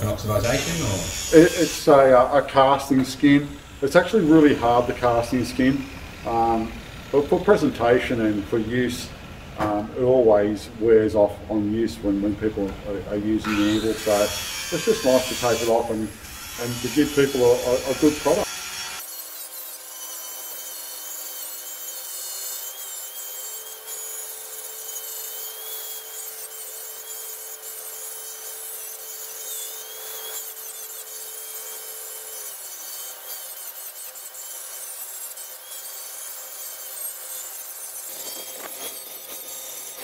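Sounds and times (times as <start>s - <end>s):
angle grinder grinding steel: 0.0s - 8.7s, 13.4s - 40.0s
grinder motor whine: 13.4s - 19.0s.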